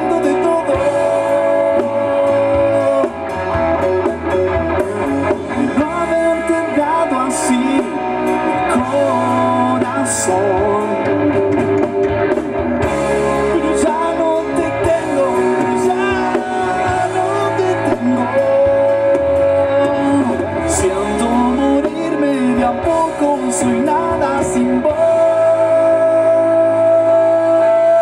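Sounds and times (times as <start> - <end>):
man singing: 0.0 - 4.0, 5.1 - 11.6, 13.2 - 28.0
drums: 0.0 - 28.0
electric bass: 0.0 - 28.0
electric guitar: 0.0 - 28.0.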